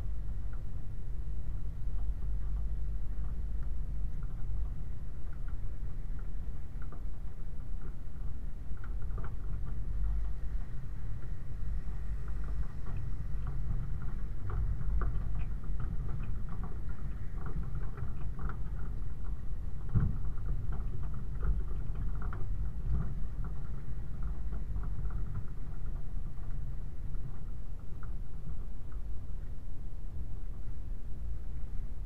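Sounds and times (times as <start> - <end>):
vehicle low rumble: 0.0 - 32.0.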